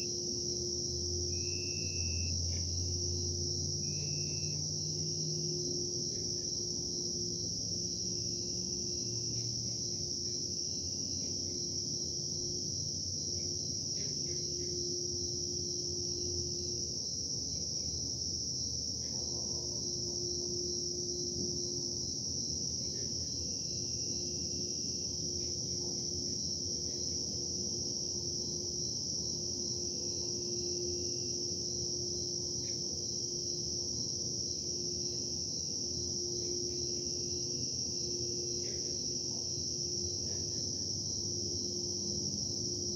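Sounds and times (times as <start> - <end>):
high-pitched chirring drone: 0.0 - 10.0
machinery low rumble and hum: 0.0 - 42.9.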